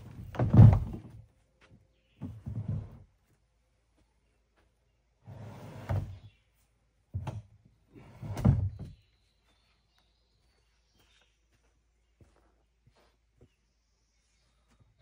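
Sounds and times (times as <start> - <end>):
kayak scraping on wooden rack: 0.0 - 1.1, 5.3 - 6.2, 8.0 - 8.9.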